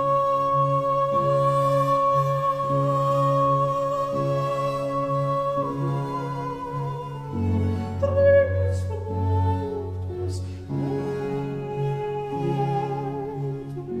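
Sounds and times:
sad orchestral string music: 0.0 - 14.0.

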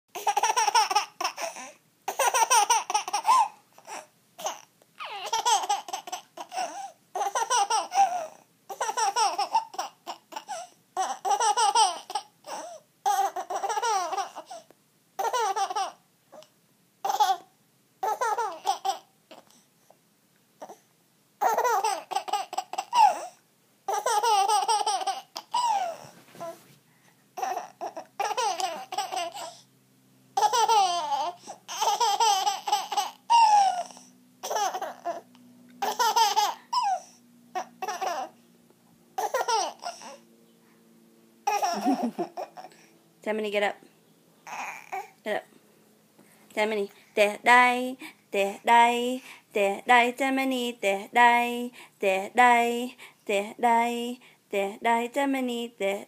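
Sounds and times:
baby laughing: 0.1 - 14.6, 15.2 - 16.0, 17.0 - 19.4, 21.4 - 26.6, 27.4 - 29.6, 30.4 - 38.4, 39.2 - 40.2, 41.4 - 42.9, 44.4 - 45.1.

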